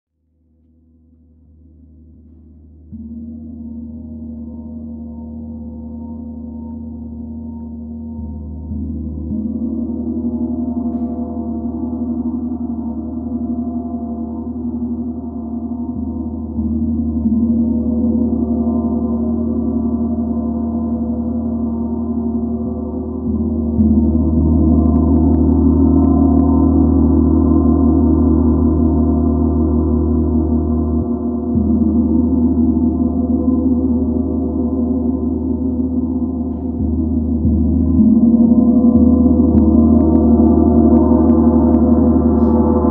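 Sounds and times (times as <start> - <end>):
gong struck with mallets: 2.0 - 42.9.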